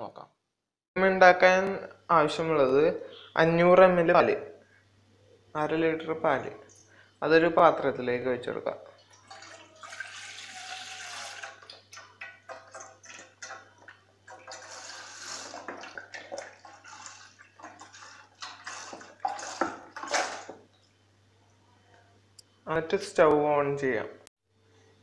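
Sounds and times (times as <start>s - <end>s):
milk pouring into metal pot: 9.0s - 20.7s.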